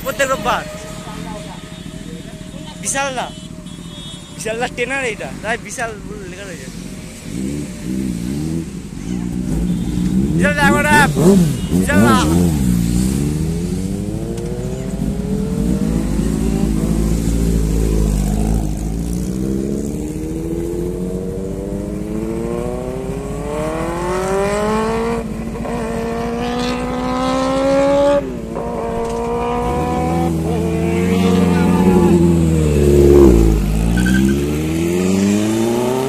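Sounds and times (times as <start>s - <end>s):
vehicle engine accelerating: 6.7s - 36.0s.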